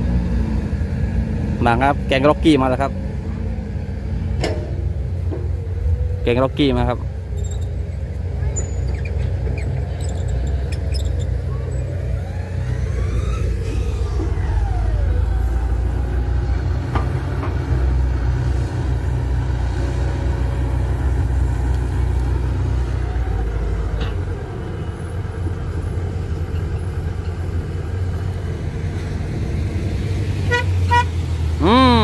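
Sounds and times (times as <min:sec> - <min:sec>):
heavy diesel machinery rumbling: 0:00.0 - 0:32.0
vehicle horn toots: 0:30.4 - 0:31.2.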